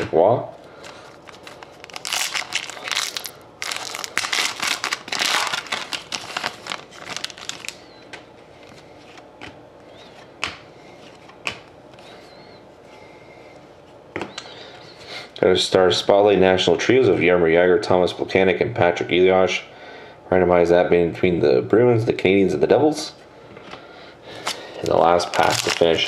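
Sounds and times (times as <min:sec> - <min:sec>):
foil wrapper crinkling: 0:00.8 - 0:08.1, 0:24.4 - 0:26.0
cards tapping: 0:10.3 - 0:12.0.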